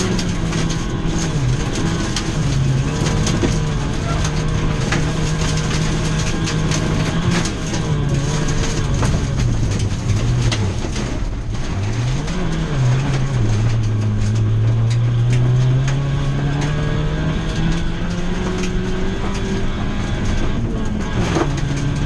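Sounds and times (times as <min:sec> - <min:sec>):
gravel striking car: 0:00.0 - 0:22.0
rally car engine revving: 0:00.0 - 0:22.0.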